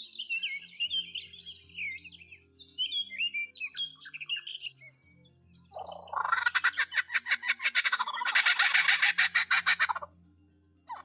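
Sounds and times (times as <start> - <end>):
bird chirps: 0.0 - 10.2
harsh bird squawking: 5.8 - 10.1.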